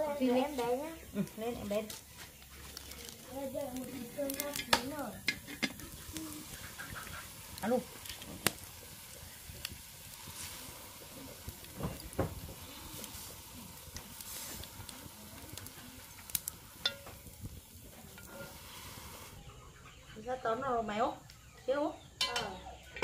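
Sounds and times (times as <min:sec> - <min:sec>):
faint cooking hiss: 0:00.0 - 0:23.0.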